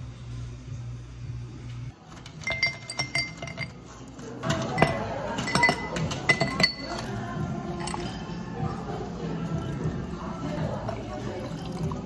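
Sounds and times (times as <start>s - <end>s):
ice cubes clinking in glass: 2.2s - 3.8s.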